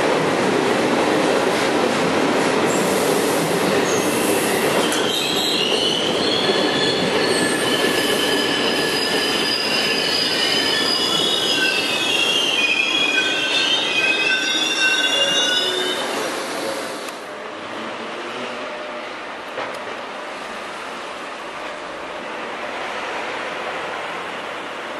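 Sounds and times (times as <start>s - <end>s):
train wheels rumbling on rail: 0.0s - 24.9s
high wavering wheel squeal: 4.8s - 16.3s.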